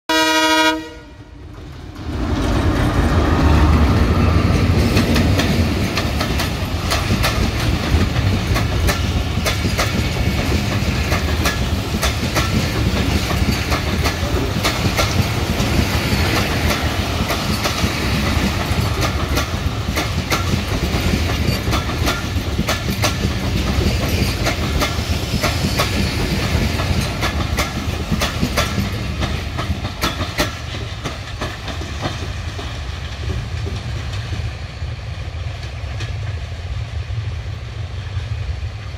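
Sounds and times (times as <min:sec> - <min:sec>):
locomotive horn: 0:00.1 - 0:01.4
locomotive rumbling past: 0:00.1 - 0:38.9
train wheels clickety-clack: 0:01.4 - 0:37.0.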